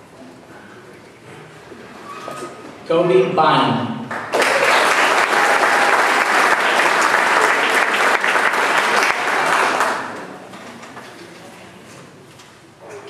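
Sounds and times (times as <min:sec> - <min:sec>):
audience applause: 0:04.1 - 0:10.4.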